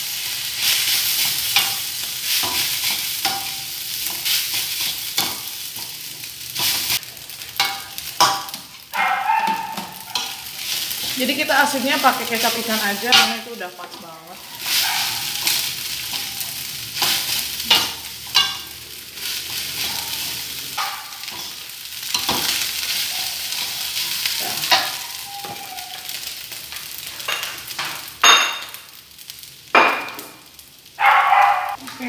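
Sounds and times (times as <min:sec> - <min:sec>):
rice sizzling in a wok: 0:00.0 - 0:32.0
spatula stirring and scraping: 0:00.5 - 0:26.3
spatula clanking against wok: 0:01.2 - 0:07.0, 0:07.6 - 0:08.8, 0:09.5 - 0:11.2, 0:13.1 - 0:18.8.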